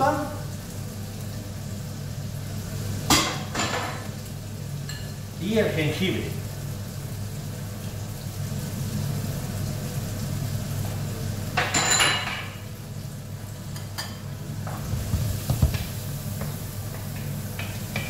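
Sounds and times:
food sizzling in hot oil: 0.0 - 18.0
wooden spoon knocking on pan: 14.6 - 18.0.

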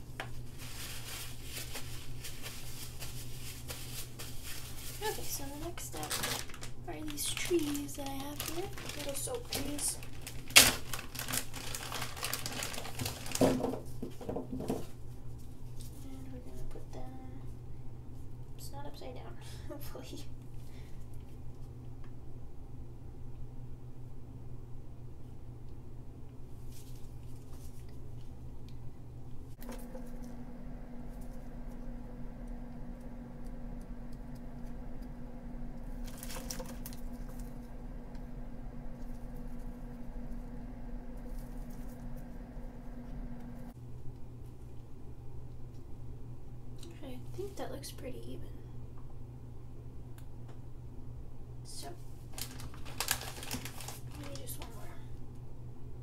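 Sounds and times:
plastic bag crinkling and rustling: 0.0 - 15.0, 35.9 - 37.8, 38.9 - 42.4, 52.0 - 55.0
low hum: 15.0 - 51.8.

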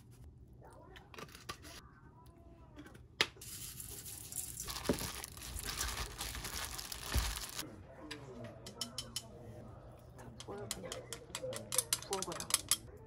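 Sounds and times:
crinkling and rustling: 3.9 - 7.6.

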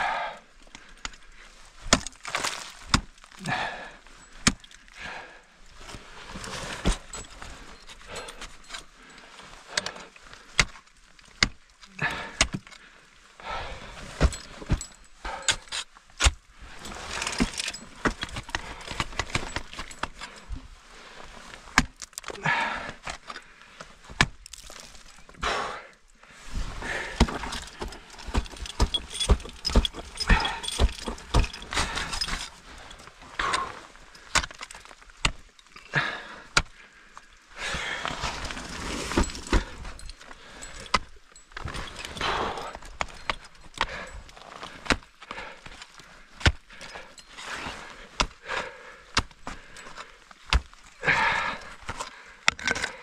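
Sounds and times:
metal climbing gear jangling: 0.6 - 25.4, 26.5 - 53.0
ice axes striking ice: 1.8 - 4.8, 9.7 - 12.8, 14.1 - 20.3, 24.1 - 25.3, 27.0 - 36.7, 38.3 - 45.8, 46.4 - 47.2, 48.1 - 53.0.

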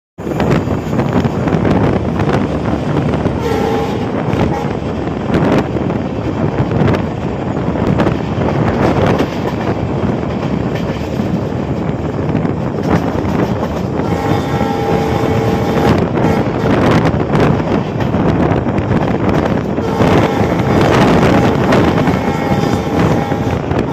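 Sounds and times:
train wheels and wind rushing: 0.2 - 23.9
train horn blasts: 3.3 - 4.9, 14.0 - 17.0, 19.8 - 23.9.

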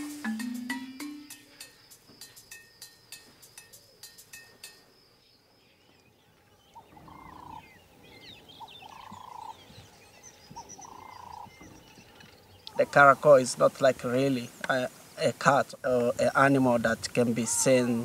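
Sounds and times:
marimba music: 0.0 - 4.8
small birds chirping: 0.9 - 18.0
loud bird call: 6.7 - 9.8, 10.5 - 13.4.

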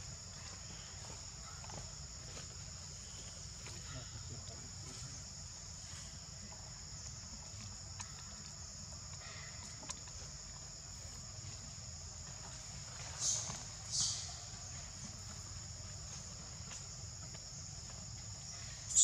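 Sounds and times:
insects droning: 0.0 - 19.0.

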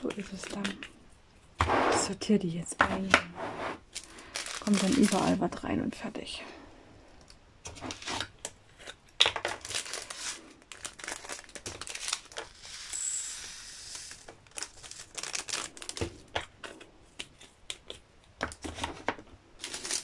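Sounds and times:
plastic bags crinkling: 0.0 - 0.9, 3.8 - 5.7, 7.7 - 12.6, 14.0 - 16.8, 18.5 - 20.0
beads rattling as poured: 3.9 - 5.4, 9.6 - 15.9.

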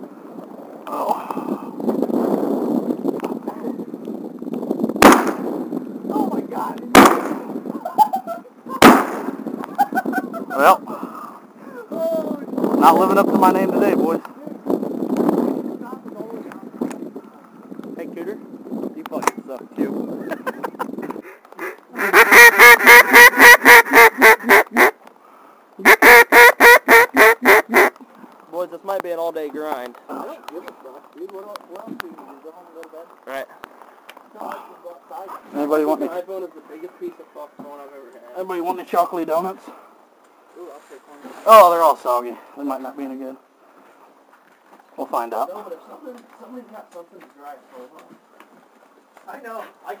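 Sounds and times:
shotgun blasts: 5.0 - 5.5, 6.9 - 7.5, 8.8 - 9.4
duck call quacks: 21.2 - 25.0, 25.8 - 28.0.

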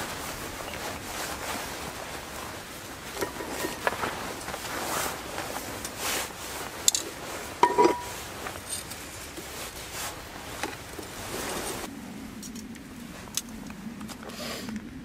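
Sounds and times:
metal clink with ring: 7.6 - 8.2.

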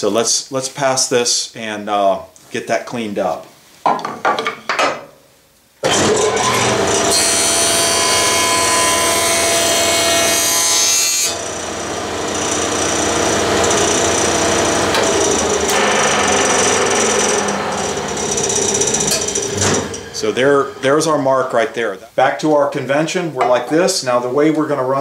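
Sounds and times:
jointer planing wood: 5.8 - 21.2
jointer running: 5.8 - 21.2.

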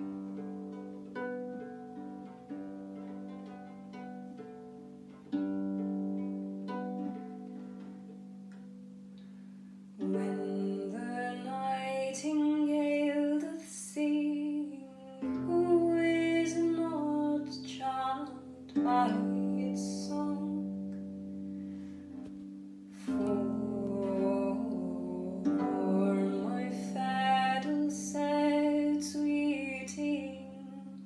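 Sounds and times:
harp plucked chords: 0.0 - 13.4, 15.2 - 31.0
woman singing: 10.0 - 20.8, 23.0 - 31.0.

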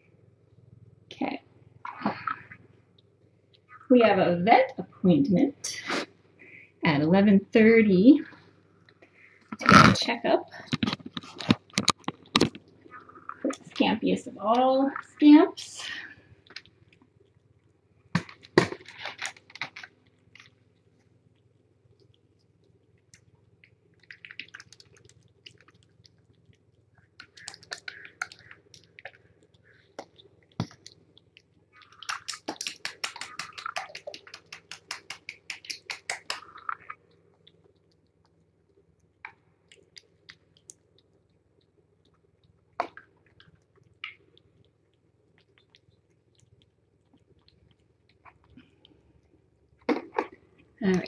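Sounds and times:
kittens chewing wet food: 10.5 - 51.0.

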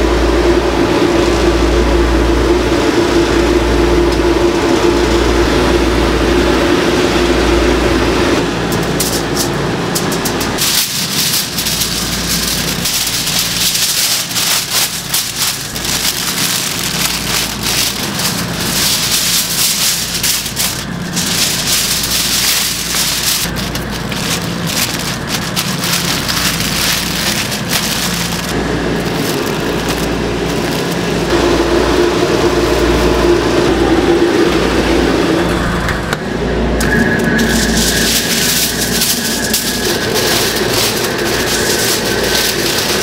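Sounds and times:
droning tone: 0.0 - 43.0
aluminium foil crinkling: 8.7 - 31.3, 36.8 - 43.0.

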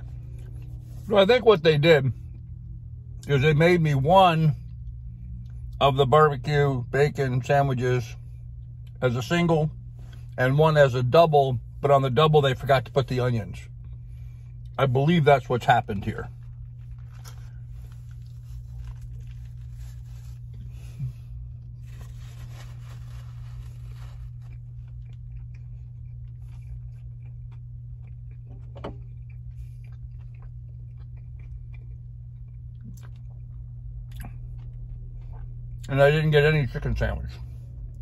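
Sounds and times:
low car cabin hum: 0.0 - 38.0
faint crunching: 16.0 - 35.5
man chewing food: 16.1 - 35.9.

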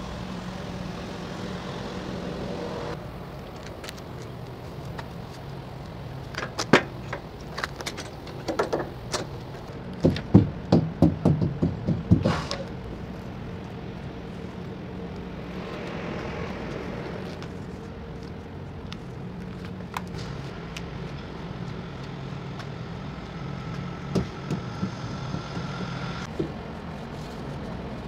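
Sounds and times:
knocks on truck wheels: 10.0 - 12.6.

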